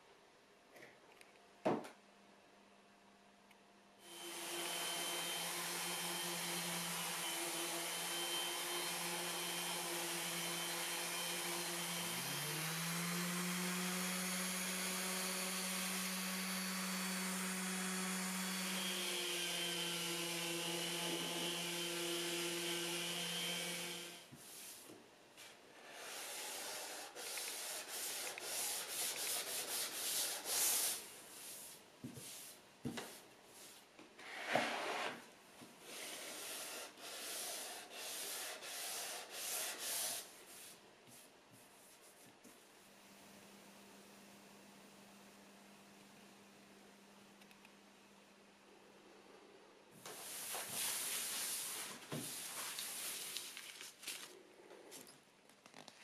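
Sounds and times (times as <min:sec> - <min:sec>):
orbital sander on wood: 0:04.1 - 0:24.2
hand sanding scraping strokes: 0:21.2 - 0:24.9, 0:25.8 - 0:35.2, 0:35.8 - 0:42.3, 0:50.0 - 0:53.5.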